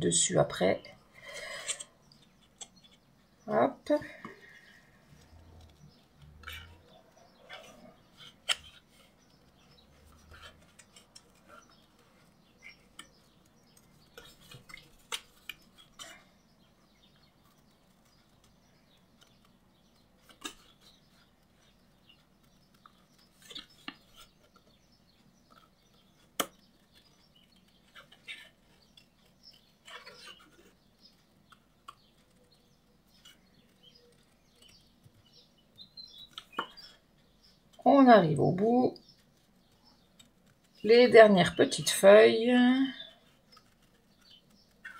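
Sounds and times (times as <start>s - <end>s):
scissors snipping paper: 43.0s - 44.9s.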